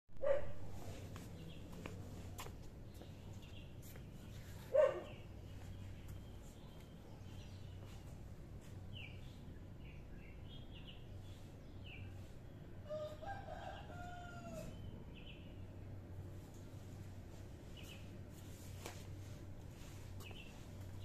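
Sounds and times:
low steady hum: 0.2 - 21.0
small birds chirping: 0.2 - 21.0
faint rooster crowing: 12.8 - 15.0.

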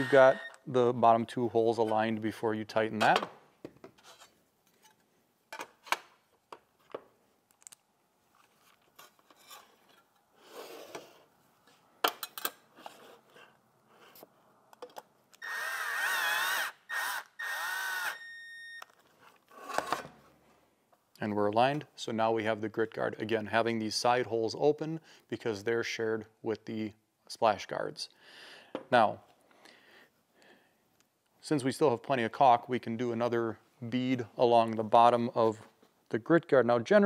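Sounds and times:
drill motor whining: 0.0 - 0.6, 15.4 - 18.6.

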